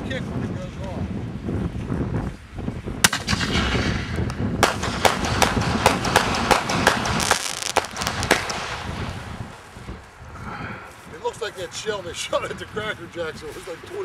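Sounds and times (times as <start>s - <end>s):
wind noise on microphone: 0.0s - 14.0s
firework shell bursting overhead: 3.0s - 9.5s.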